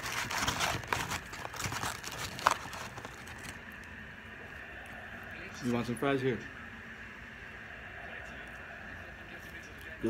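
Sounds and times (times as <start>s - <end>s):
paper wrapper crinkling: 0.0s - 3.9s.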